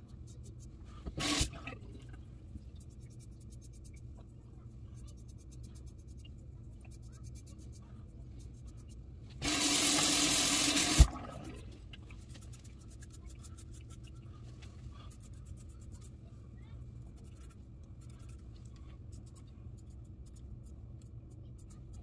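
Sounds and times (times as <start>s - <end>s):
razor scraping skin: 0.2s - 1.5s
tap running: 9.4s - 11.5s.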